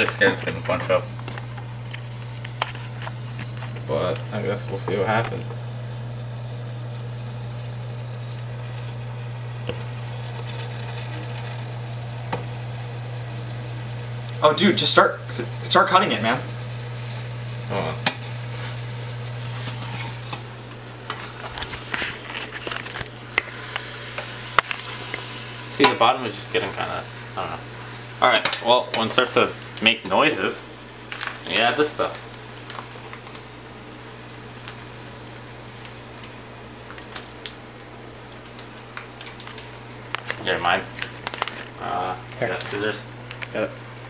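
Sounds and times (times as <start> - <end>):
steady low hum: 0.0 - 31.1
meat sizzling faintly: 0.0 - 44.0
spatula scraping pot: 17.0 - 26.0.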